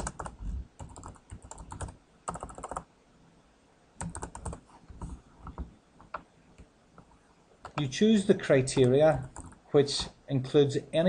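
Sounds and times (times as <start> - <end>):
typing on computer keyboard: 0.0 - 2.9, 4.0 - 6.2, 8.8 - 9.6.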